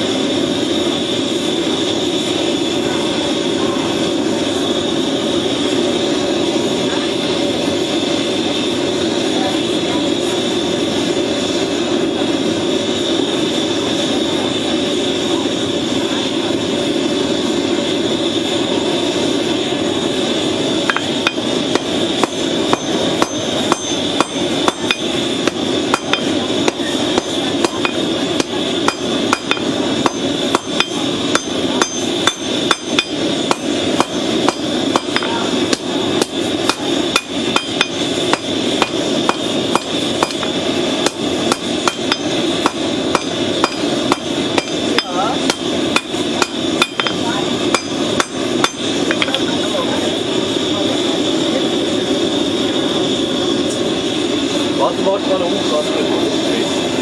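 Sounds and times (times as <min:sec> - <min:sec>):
steady rushing noise: 0:00.0 - 0:57.0
hammer striking hot steel on anvil: 0:20.8 - 0:49.5.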